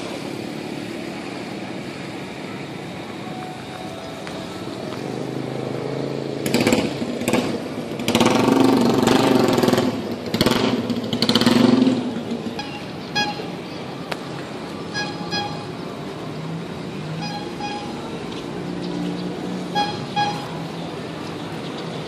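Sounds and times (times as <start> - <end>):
traffic hum: 0.0 - 22.0
small engine revving: 5.7 - 12.1.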